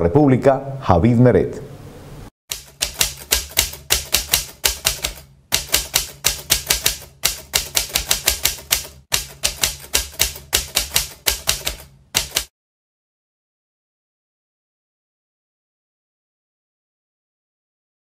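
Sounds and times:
typewriter keys clacking: 2.5s - 12.5s.

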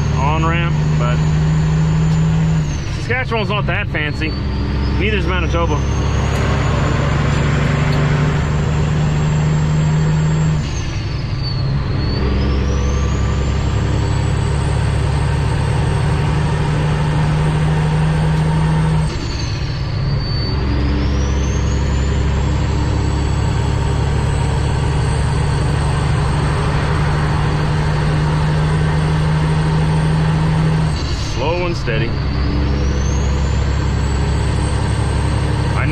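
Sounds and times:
diesel truck engine pulling hard: 0.0s - 35.9s.

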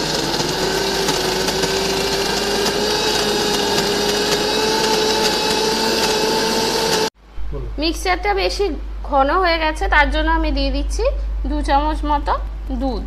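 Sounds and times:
mixer grinder running: 0.0s - 7.1s.

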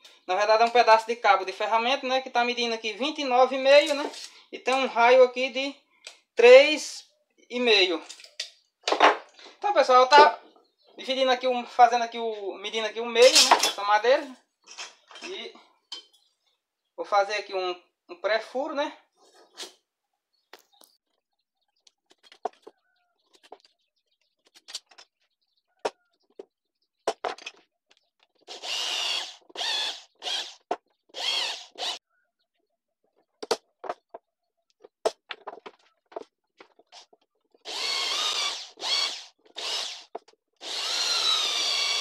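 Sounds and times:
electric drill whining: 28.5s - 32.0s, 37.6s - 42.0s.

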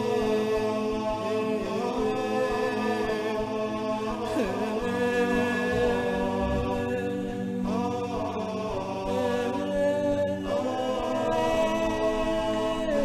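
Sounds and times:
chanted vocal melody: 0.0s - 13.0s
low drone: 4.9s - 7.8s.

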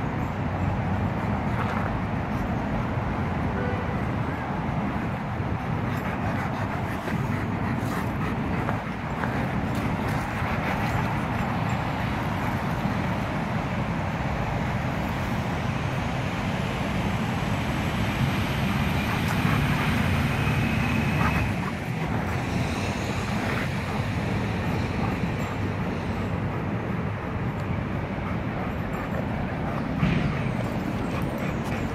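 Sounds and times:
distant city traffic rumble: 0.0s - 31.9s.

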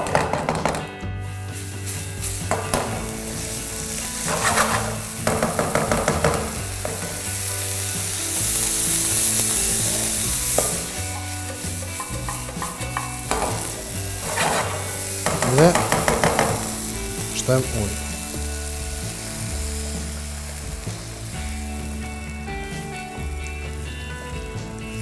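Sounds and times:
rice and onion sizzling in a pan: 1.3s - 25.0s
wooden spoon scraping a pan: 3.8s - 16.7s.

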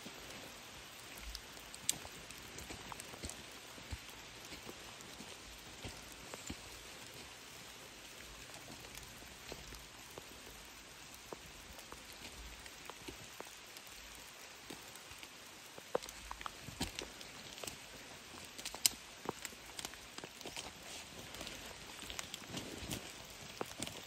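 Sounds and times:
rain hissing on forest: 0.0s - 24.0s
sharp water drips: 0.1s - 24.0s.

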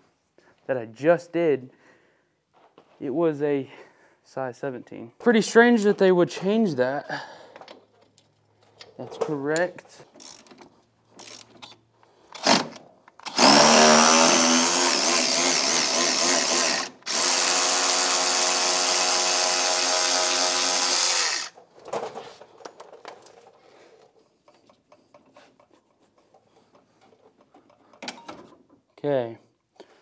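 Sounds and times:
cordless power tool running: 12.4s - 21.6s.

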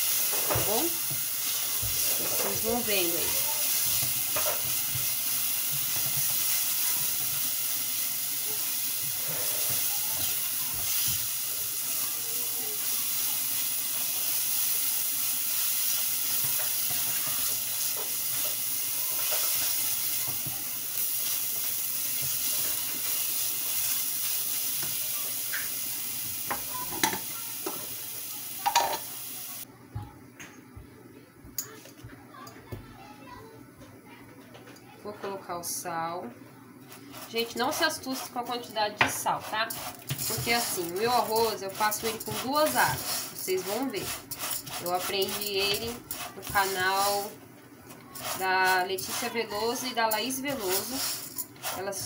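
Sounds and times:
paste sizzling in hot oil: 0.0s - 29.7s, 36.8s - 47.4s, 48.0s - 52.0s
spatula stirring and scraping: 0.1s - 25.2s, 36.8s - 52.0s.

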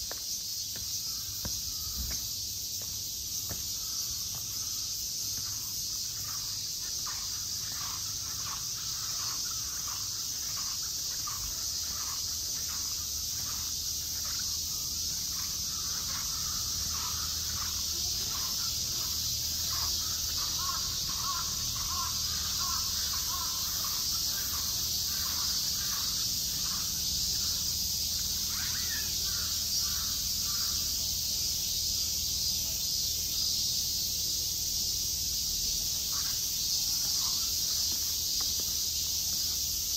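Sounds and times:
high-pitched insect drone: 0.0s - 39.9s
crows cawing: 6.2s - 27.6s, 28.4s - 30.8s.

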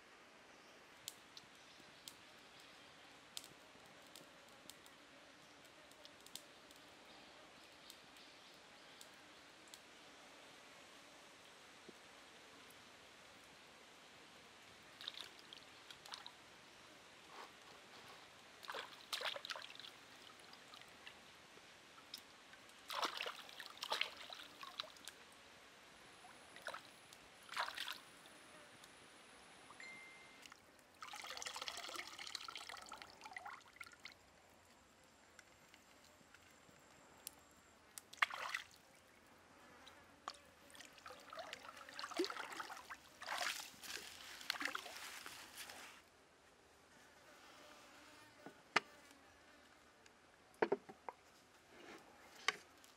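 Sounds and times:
running water hiss: 14.5s - 28.8s, 29.4s - 36.8s, 38.0s - 46.0s
water splashing and trickling: 14.9s - 16.5s, 18.6s - 21.3s, 22.0s - 25.2s, 26.5s - 28.3s, 30.4s - 34.3s, 38.0s - 39.0s, 40.6s - 45.3s.

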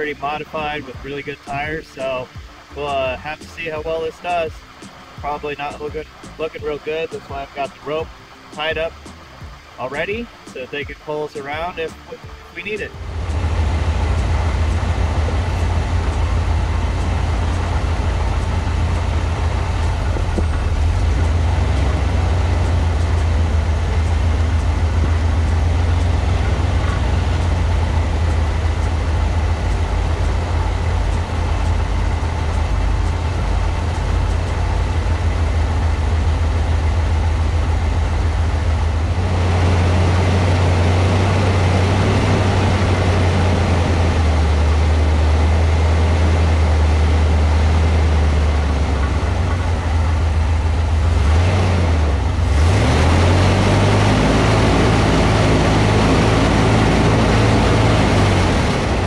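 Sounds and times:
road noise: 0.0s - 59.0s
vehicle engine drone: 0.0s - 59.0s.

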